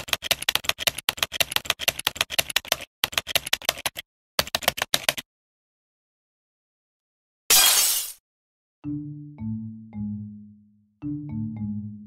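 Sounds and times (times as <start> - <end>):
typewriter keys clicking: 0.0 - 5.2.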